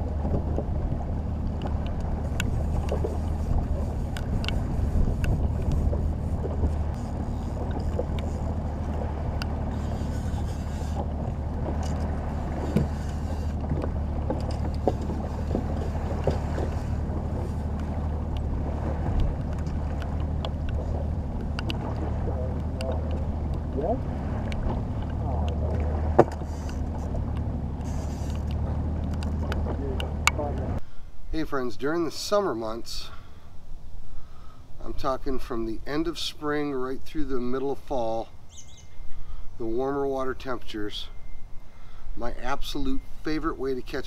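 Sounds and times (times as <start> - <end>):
boat motor humming: 0.0 - 44.0
water noise: 0.0 - 44.0
wind: 0.0 - 44.0
fishing gear clicks and knocks: 1.5 - 18.5, 24.5 - 30.7.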